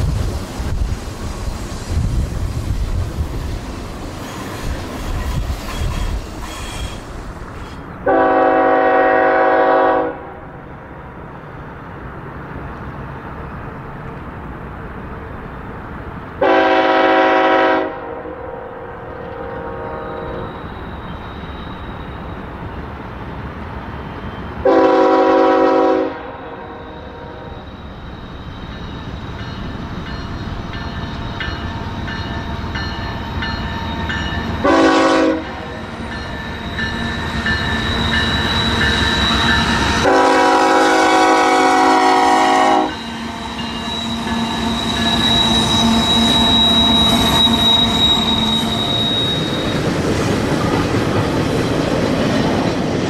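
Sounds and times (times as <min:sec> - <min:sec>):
high squeal of train wheels: 0:00.0 - 0:10.8, 0:15.4 - 0:52.9
train engine and rail rumble: 0:00.0 - 0:53.0
train air horn blasts: 0:08.0 - 0:10.5, 0:16.4 - 0:20.8, 0:24.6 - 0:27.7, 0:34.6 - 0:35.9, 0:39.5 - 0:49.1.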